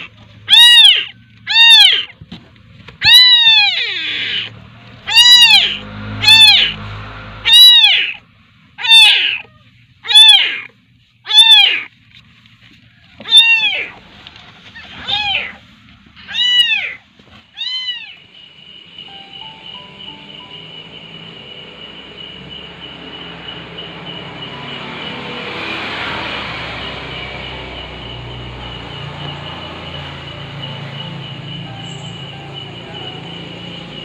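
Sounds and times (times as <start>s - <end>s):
kitten meowing loudly: 0.0s - 2.1s, 3.0s - 4.5s, 5.1s - 6.8s, 7.4s - 8.2s, 8.8s - 10.7s, 11.3s - 11.9s, 13.2s - 14.0s, 14.8s - 15.6s, 16.3s - 17.0s, 17.6s - 18.2s.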